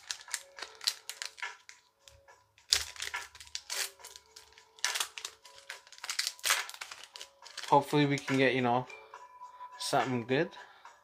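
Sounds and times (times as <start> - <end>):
foil wrapper crinkling: 0.0 - 8.3.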